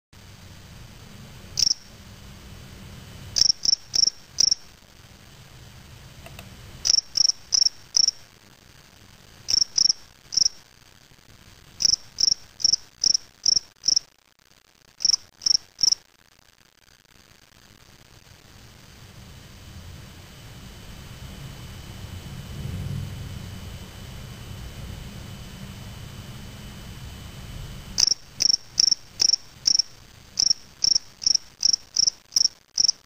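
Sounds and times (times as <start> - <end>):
cricket chirping: 1.6 - 2.0, 3.3 - 4.7, 6.8 - 8.3, 9.4 - 10.7, 11.8 - 14.1, 15.0 - 16.0, 28.0 - 33.0.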